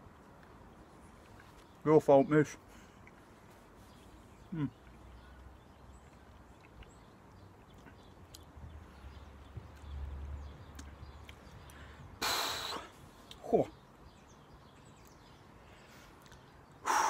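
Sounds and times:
short loud hiss: 12.2s - 12.9s.

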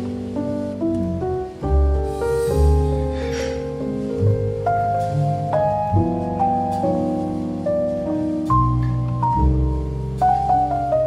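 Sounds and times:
mellow instrumental music: 0.0s - 11.0s.

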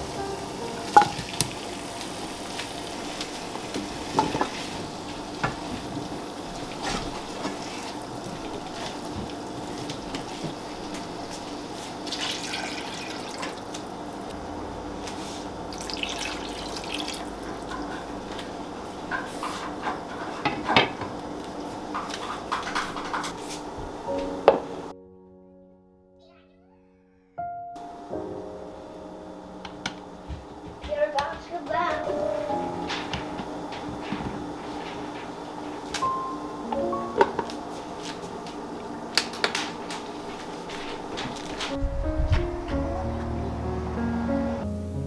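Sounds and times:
curry hissing in a pan: 0.0s - 14.3s, 15.2s - 17.7s.

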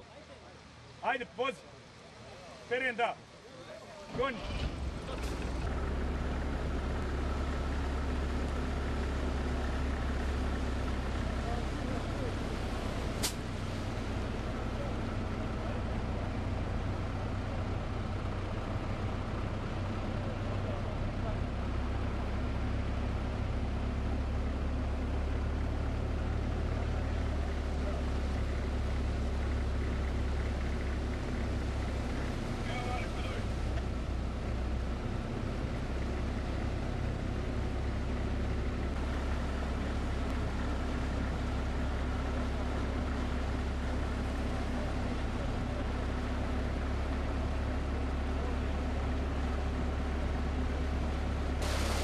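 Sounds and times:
boat motor droning: 3.3s - 52.0s
heavy vehicle engine running: 4.1s - 52.0s
water and air hissing: 12.2s - 14.1s, 51.6s - 52.0s.

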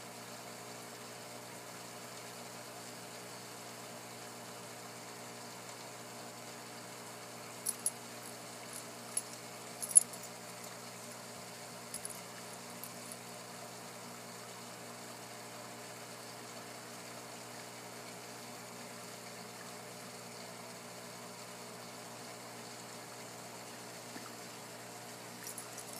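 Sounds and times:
aquarium equipment hum: 0.0s - 25.9s.

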